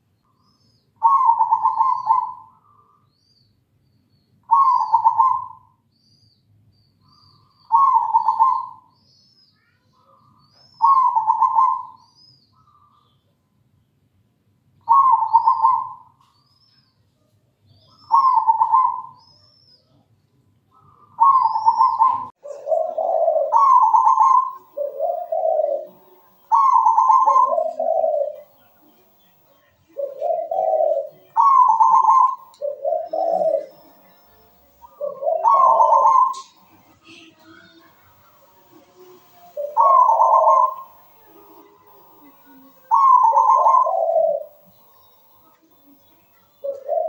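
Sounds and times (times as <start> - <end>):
dove cooing: 1.0 - 2.5, 4.5 - 5.6, 7.7 - 8.8, 10.8 - 12.0, 14.9 - 16.0, 18.1 - 19.2, 21.2 - 47.0
small bird chirping: 21.3 - 47.0.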